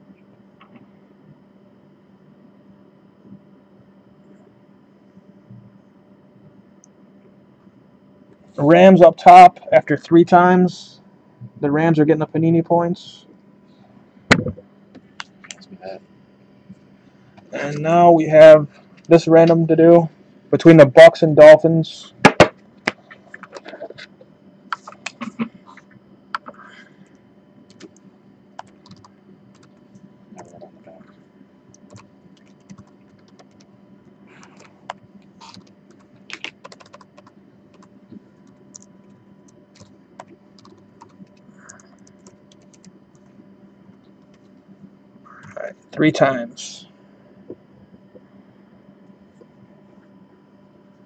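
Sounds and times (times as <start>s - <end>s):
faint steady hum: 0.0s - 51.0s
laptop keyboard typing: 28.6s - 29.8s, 31.8s - 33.7s, 34.4s - 43.3s.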